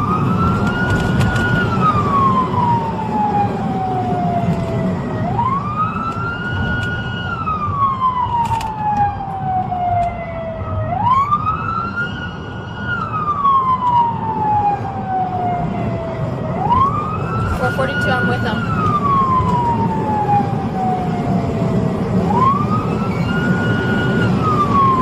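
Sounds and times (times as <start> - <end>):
engine and road rumble: 0.0 - 25.0
police siren wailing: 0.0 - 25.0.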